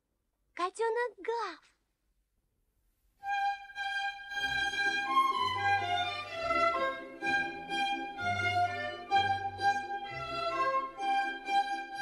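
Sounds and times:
low musical accompaniment: 3.2s - 12.0s
violin melody: 3.2s - 12.0s.

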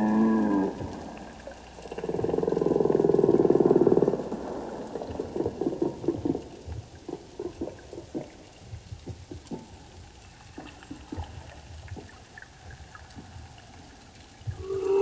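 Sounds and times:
underwater pops and clicks: 5.5s - 9.8s.

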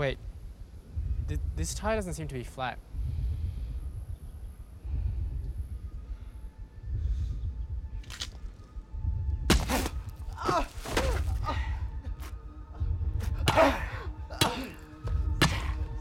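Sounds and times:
low pulsing score: 0.0s - 16.0s
pained cries and groans: 9.6s - 16.0s.

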